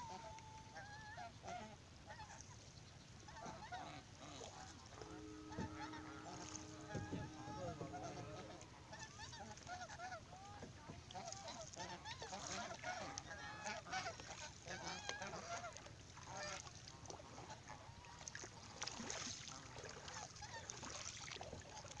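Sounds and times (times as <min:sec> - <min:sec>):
geese honking: 0:03.3 - 0:16.7.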